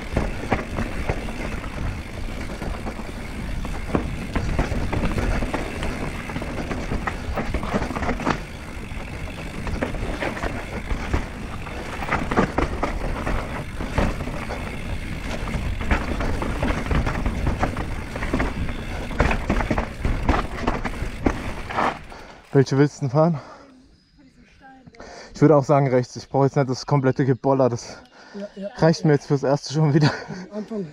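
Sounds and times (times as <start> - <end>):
bike rattling and knocking: 0.0 - 23.1
wind and tyre noise: 0.0 - 27.8.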